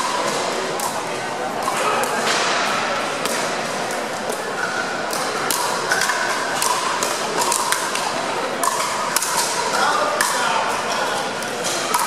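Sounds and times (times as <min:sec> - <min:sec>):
paddles hitting plastic ball: 0:05.1 - 0:10.4.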